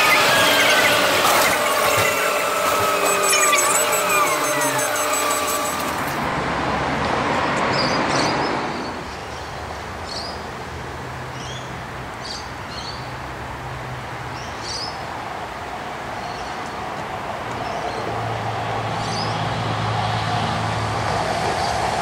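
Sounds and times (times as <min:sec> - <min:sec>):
birds chirping: 0:00.0 - 0:05.9
bus engine winding down: 0:00.0 - 0:08.8, 0:18.0 - 0:22.0
low steady bus hum: 0:00.0 - 0:22.0
traffic noise: 0:00.0 - 0:22.0.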